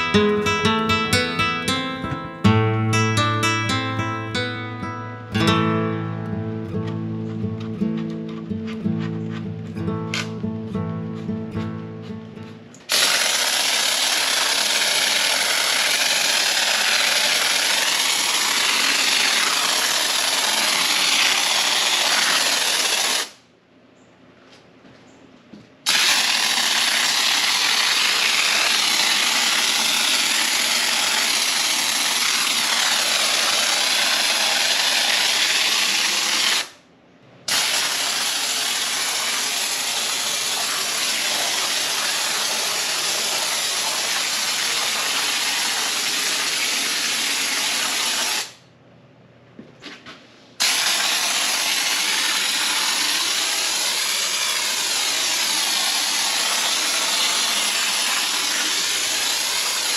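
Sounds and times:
spray foam hissing: 0:12.9 - 0:23.3, 0:25.9 - 0:36.7, 0:37.5 - 0:48.6, 0:50.6 - 0:59.9.

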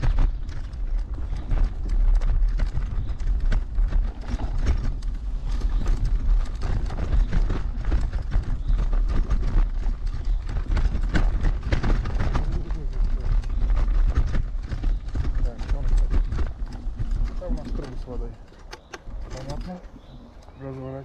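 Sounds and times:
scooter rattling and knocking: 0:00.0 - 0:21.0
steady low rumble: 0:00.0 - 0:21.0.

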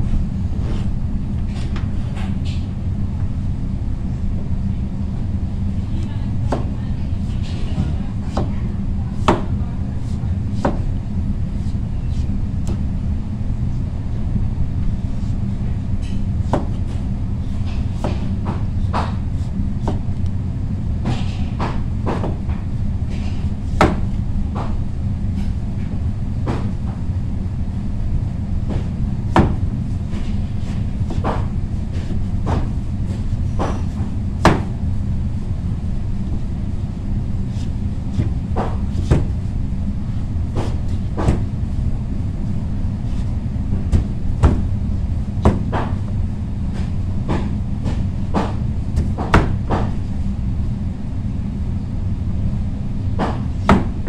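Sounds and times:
low hum: 0:00.0 - 0:54.0
knife chopping on cutting board: 0:10.6 - 0:10.9, 0:16.1 - 0:17.0, 0:17.7 - 0:20.0, 0:28.7 - 0:34.7, 0:37.6 - 0:39.3, 0:40.6 - 0:41.5, 0:45.4 - 0:46.0.

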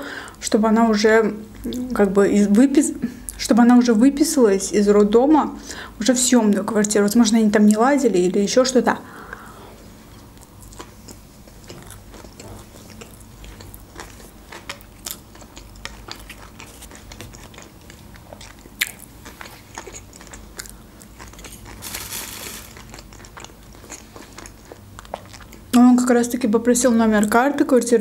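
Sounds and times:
chewing and crunching food: 0:10.0 - 0:25.8.

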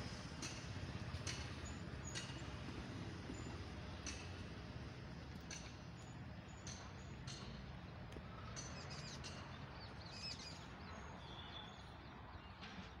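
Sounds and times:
birds chirping: 0:06.0 - 0:12.8.

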